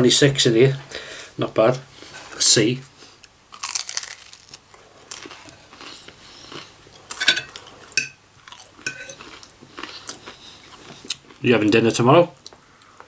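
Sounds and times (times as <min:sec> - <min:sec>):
chewing crunchy food: 0:03.5 - 0:11.4
cutlery clinking on a plate: 0:07.1 - 0:08.2, 0:08.8 - 0:09.2.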